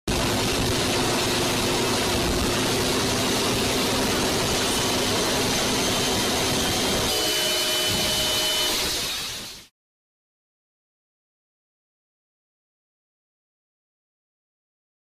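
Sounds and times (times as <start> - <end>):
train rumbling along track: 0.1 - 8.4.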